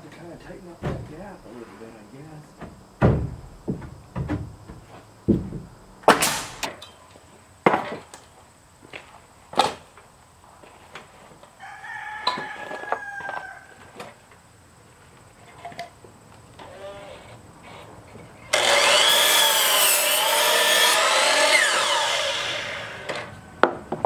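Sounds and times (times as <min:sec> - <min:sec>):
nail gun shots: 0:06.0 - 0:06.7
rooster crowing: 0:11.6 - 0:14.0.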